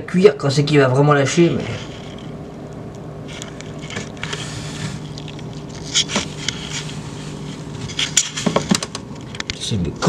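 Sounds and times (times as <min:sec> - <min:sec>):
fluorescent light ballast humming: 0:00.0 - 0:10.0.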